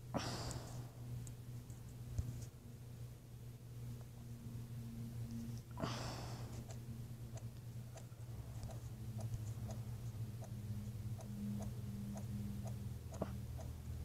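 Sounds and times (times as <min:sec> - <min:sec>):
low steady hum: 0:00.0 - 0:14.0
faint even ticking: 0:06.6 - 0:14.0.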